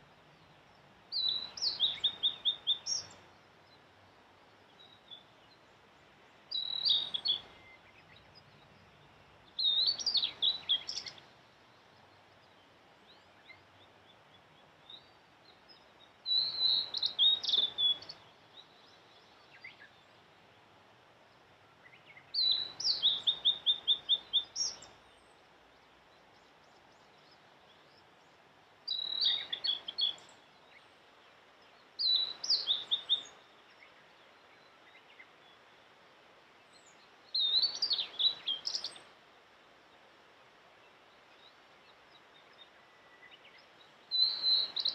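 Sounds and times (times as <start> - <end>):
bird singing whistled notes: 1.1 - 3.8, 4.7 - 5.7, 6.5 - 8.6, 9.5 - 11.4, 14.8 - 20.2, 21.8 - 25.4, 28.9 - 35.6, 36.7 - 39.1, 41.3 - 44.9.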